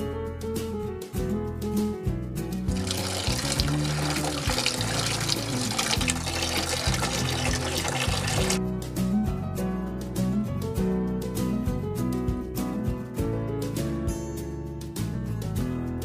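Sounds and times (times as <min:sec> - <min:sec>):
background music: 0:00.0 - 0:16.0
hose water splashing into tank: 0:02.7 - 0:08.6.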